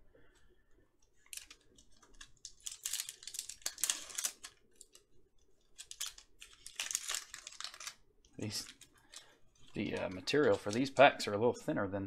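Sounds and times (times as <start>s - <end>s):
foil wrapper crinkling and tearing: 1.2s - 5.0s, 5.7s - 11.0s.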